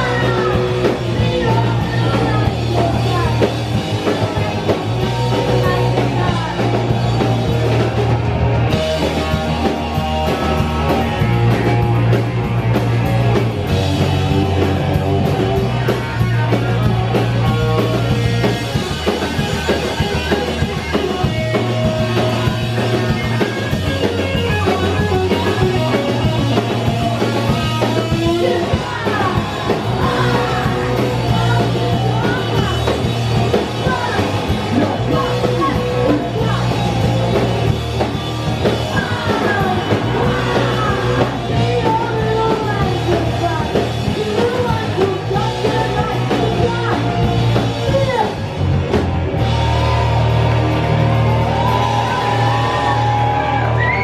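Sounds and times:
woman singing lead vocal: 0.0 - 7.8, 27.9 - 37.4, 38.6 - 48.4
punk rock band playing: 0.0 - 54.0.

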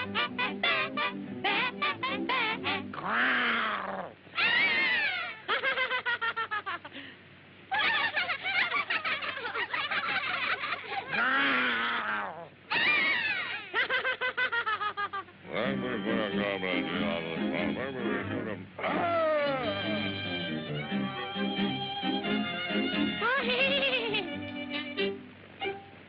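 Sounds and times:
fast pulsing cartoon chatter: 0.0 - 3.4
cartoon cries rising and falling: 0.0 - 5.5, 11.0 - 13.7, 18.8 - 22.3.

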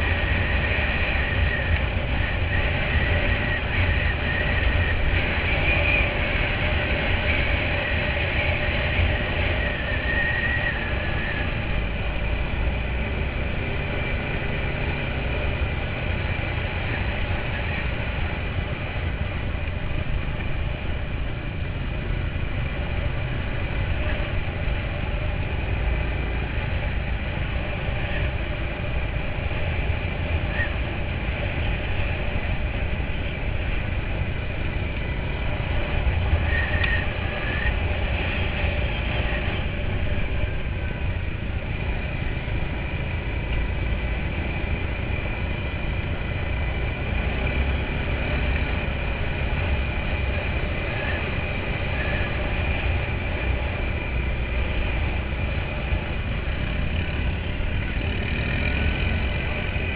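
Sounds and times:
quad bike engine running: 0.0 - 59.9.

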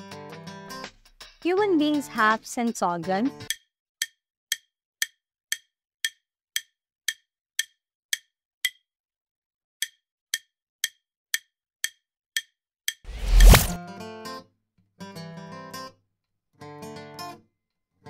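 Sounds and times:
countdown timer ticking: 1.4 - 8.8.

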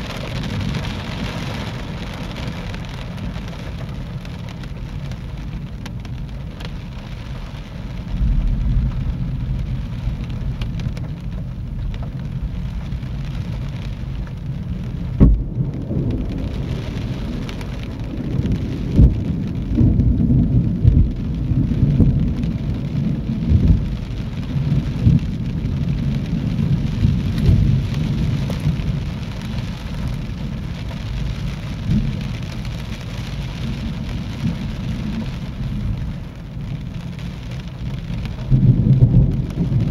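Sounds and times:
thunder rumbling: 0.0 - 7.0, 7.8 - 39.9
steady rain: 0.0 - 39.9
sharp thunder crack: 15.1 - 22.5.

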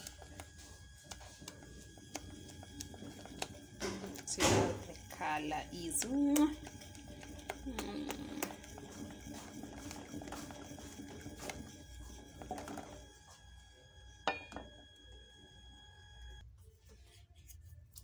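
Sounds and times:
spoon scraping saucepan: 2.1 - 13.2.

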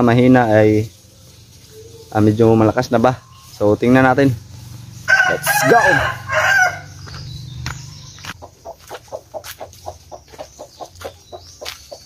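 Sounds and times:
chicken clucking: 7.0 - 12.0.

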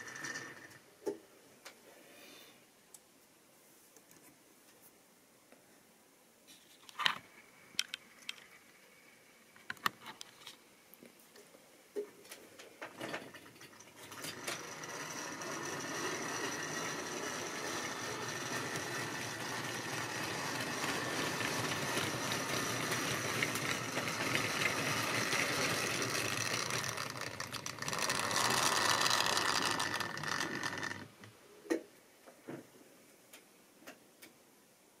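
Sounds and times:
model train wheels clattering: 0.0 - 0.8, 12.3 - 31.4.

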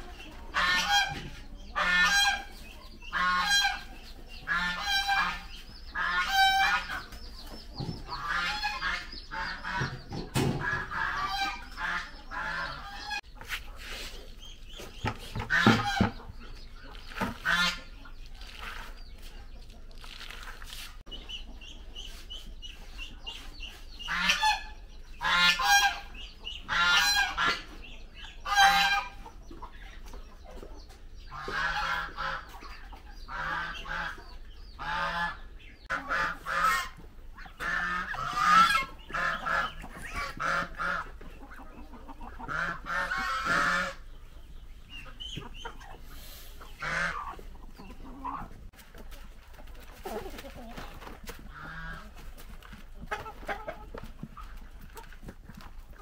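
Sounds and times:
poultry calling: 0.0 - 20.2, 21.2 - 48.8, 49.6 - 56.0.

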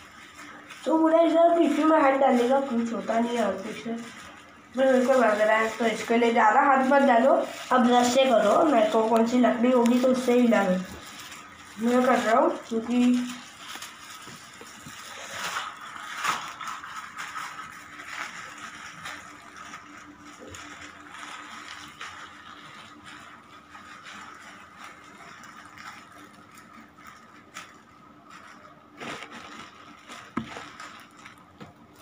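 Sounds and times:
plastic bag rustling and clicking: 0.0 - 32.0
knock on plastic bag: 30.3 - 30.8.

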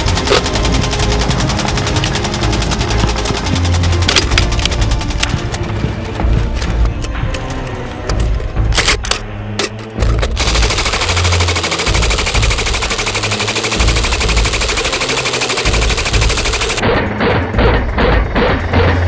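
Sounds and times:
machine gun firing: 0.0 - 5.5, 10.4 - 16.8.

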